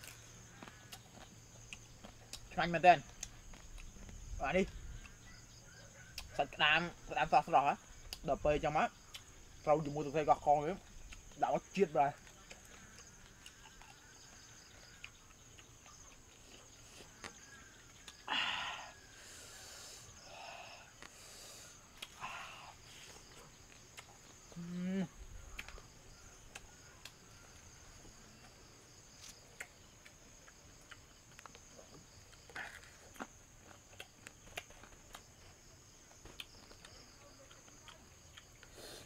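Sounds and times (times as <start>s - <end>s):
crunching of eating crabs: 0.0s - 6.4s, 7.4s - 39.0s
night insects chirring: 0.0s - 39.0s
mouth noise: 24.5s - 25.7s.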